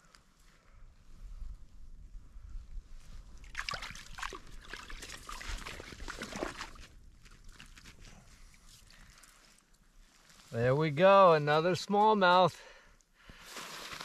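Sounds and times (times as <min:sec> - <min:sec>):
water splashing in ice hole: 0:03.4 - 0:08.2.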